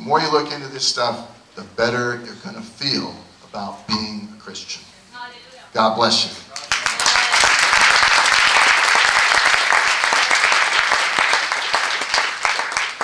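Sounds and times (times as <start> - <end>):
congregation applauding: 6.5 - 13.0.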